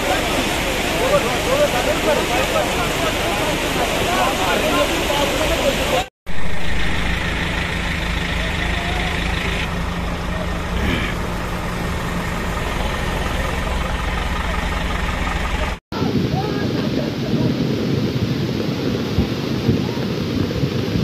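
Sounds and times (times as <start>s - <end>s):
diesel engine idling: 0.0s - 15.8s
crowd voices: 0.0s - 17.7s.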